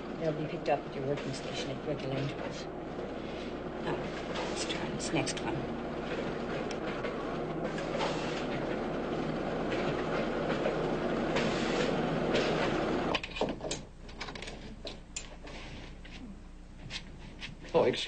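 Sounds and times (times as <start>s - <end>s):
factory machinery clattering: 0.0s - 3.2s, 3.8s - 13.2s.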